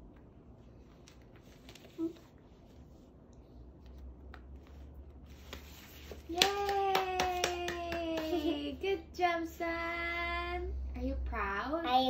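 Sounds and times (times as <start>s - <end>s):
hands clapping: 6.3s - 8.6s
person cheering: 6.3s - 8.6s.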